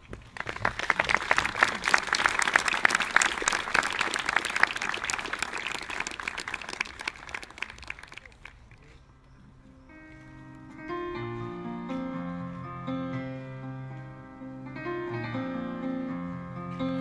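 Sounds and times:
audience applauding: 0.2 - 8.7.

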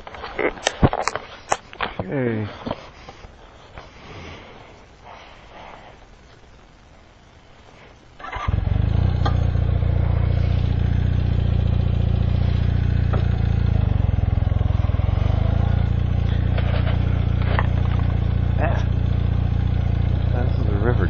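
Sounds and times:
motorcycle engine starting and running: 8.2 - 21.0.

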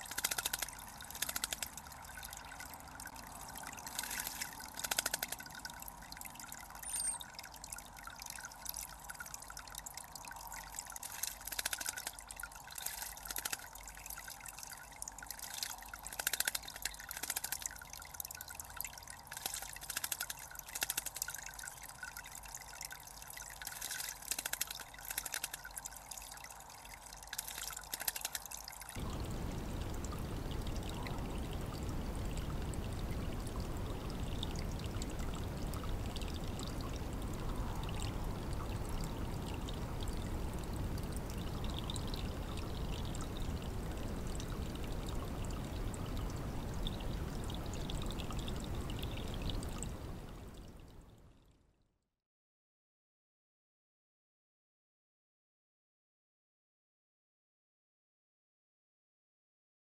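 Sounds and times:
birds splashing in water: 0.0 - 7.4
water trickling into bird bath: 0.0 - 51.2.

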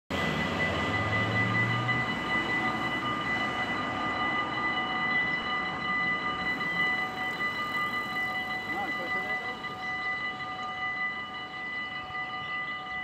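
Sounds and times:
level crossing bells ringing: 0.1 - 13.0
passing train rush: 0.1 - 13.0.

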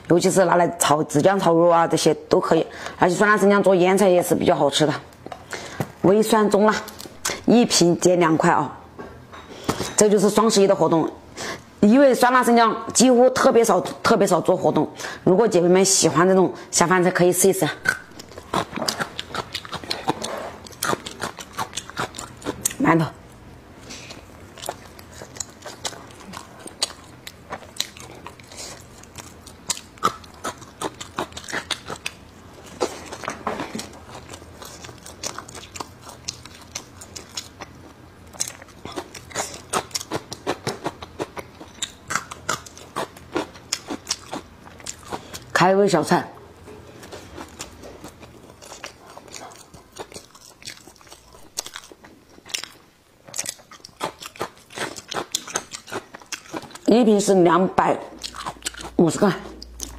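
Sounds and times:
close chewing with crunches: 17.7 - 45.6, 46.8 - 59.9.

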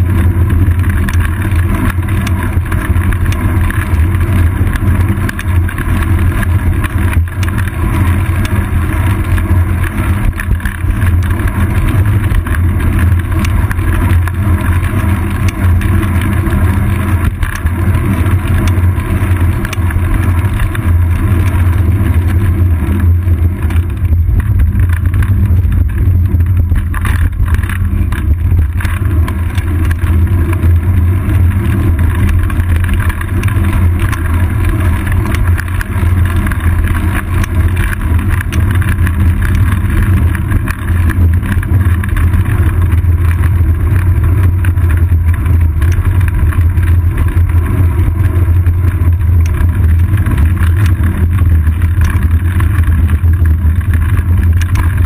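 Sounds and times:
bicycle road vibration on asphalt: 0.0 - 55.0
wind rumble: 0.0 - 55.0.

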